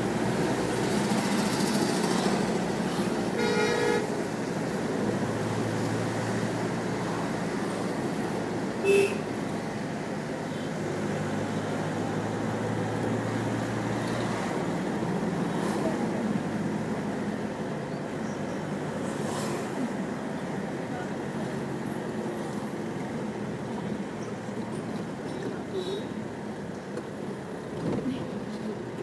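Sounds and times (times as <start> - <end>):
car engine and road hum: 0.0 - 29.0
vehicle horn: 3.3 - 4.2, 8.8 - 9.3.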